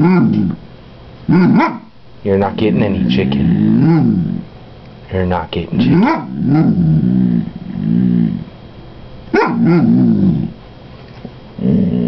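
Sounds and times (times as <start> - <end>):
dog moaning vocalisations: 0.0 - 0.6, 2.7 - 4.5, 5.8 - 8.5, 9.6 - 10.6, 11.6 - 12.0.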